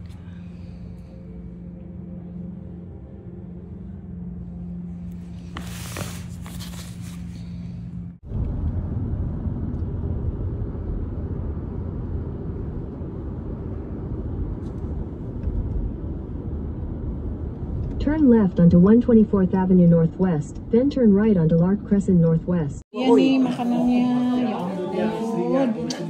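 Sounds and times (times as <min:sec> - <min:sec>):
car engine and road rumble: 0:00.0 - 0:22.9
low hum: 0:00.0 - 0:26.0
fabric rustling: 0:05.3 - 0:07.9.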